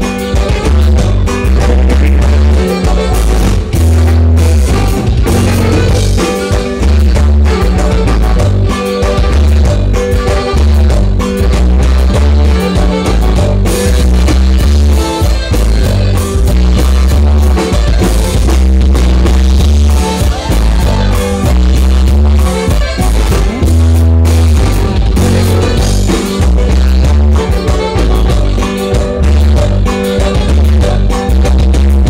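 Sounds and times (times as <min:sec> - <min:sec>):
loud band dance music: 0:00.0 - 0:32.0.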